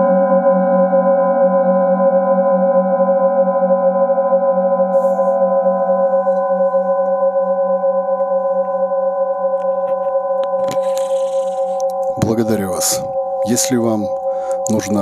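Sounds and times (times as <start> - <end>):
metal singing bowl ringing: 4.7 - 15.0
low pulsing hum: 5.0 - 15.0.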